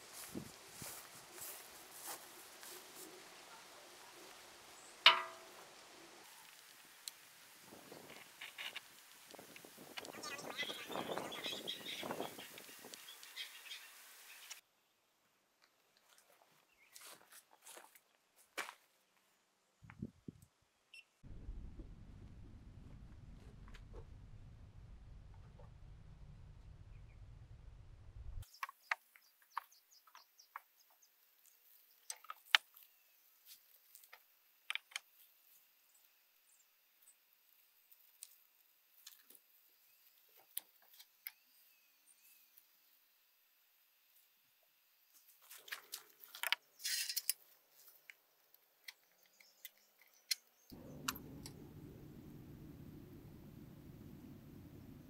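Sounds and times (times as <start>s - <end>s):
low rumble: 21.3s - 28.4s, 50.7s - 55.0s
low background noise: 28.4s - 55.0s.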